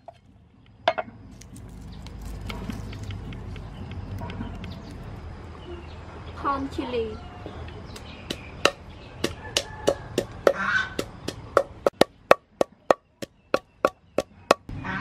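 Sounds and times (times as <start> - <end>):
wooden pestle pounding in mortar: 8.0 - 14.7.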